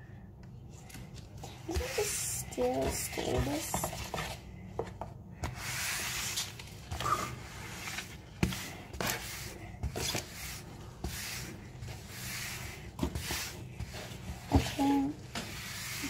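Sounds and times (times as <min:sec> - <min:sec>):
slime rubbing in plastic bowl: 0:01.6 - 0:04.4, 0:05.5 - 0:16.0.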